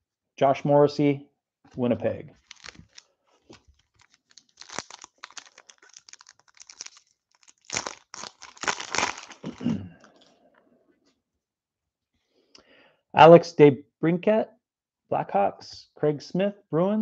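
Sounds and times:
foil wrapper tearing: 2.4 - 9.6
foil wrapper crinkling: 2.4 - 10.3.

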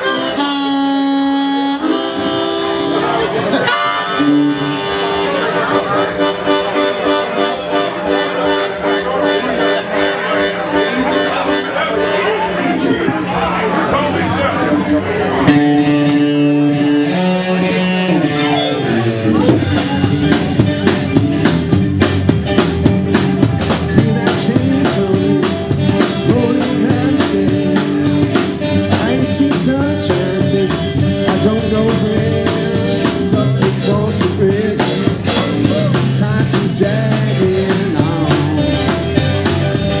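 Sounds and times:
blues band playing: 0.0 - 40.0
drum kit fast beat: 19.4 - 40.0.

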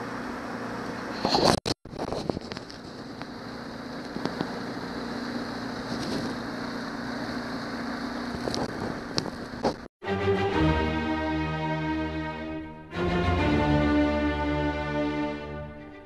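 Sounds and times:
outboard motor running: 0.0 - 9.9.

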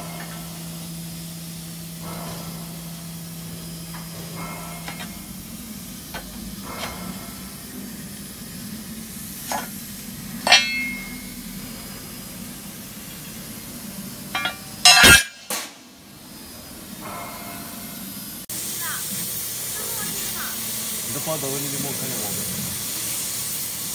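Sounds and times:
steady low hum: 0.0 - 19.0
steel plates clinking and knocking: 10.4 - 11.4, 14.3 - 15.6.

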